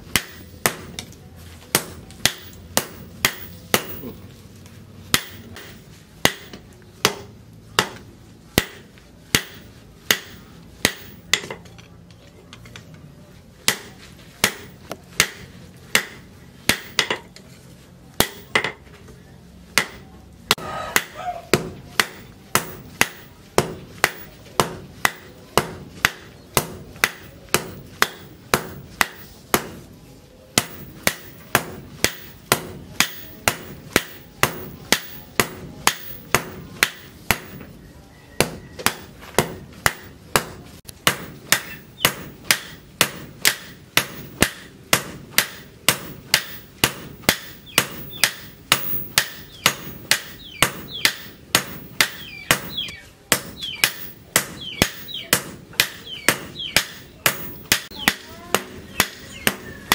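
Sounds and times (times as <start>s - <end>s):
sledgehammer striking metal on anvil: 1.7s - 4.2s, 5.1s - 8.0s, 8.6s - 11.6s, 19.8s - 29.9s, 30.6s - 37.7s, 38.4s - 59.9s.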